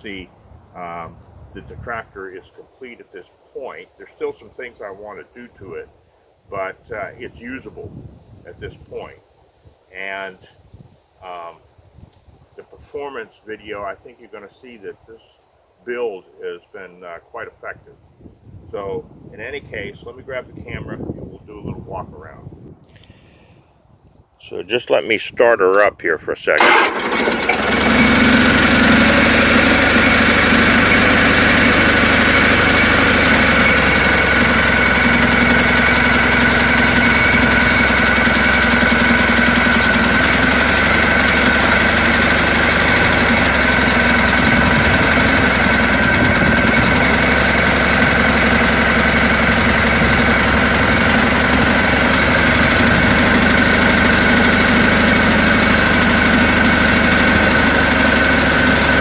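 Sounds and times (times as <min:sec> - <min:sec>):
garden tractor engine idling: 0:26.6 - 0:59.0
steady high whine: 0:26.8 - 0:59.0.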